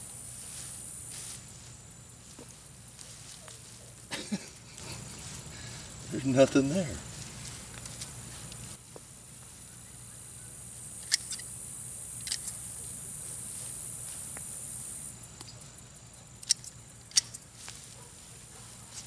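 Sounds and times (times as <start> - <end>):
digging through dry mulch: 0.0 - 9.8, 17.4 - 19.0
crackles and snaps: 16.4 - 17.4.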